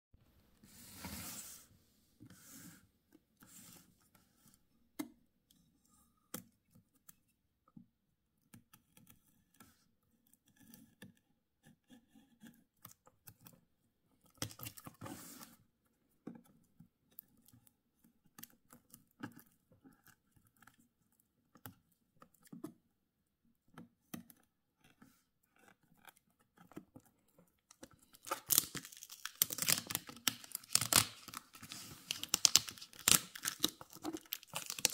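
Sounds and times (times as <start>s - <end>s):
small clicks and scratches: 8.4s - 34.9s
knife scraping plastic wrap: 28.1s - 34.9s
plastic film crinkling: 28.2s - 34.9s.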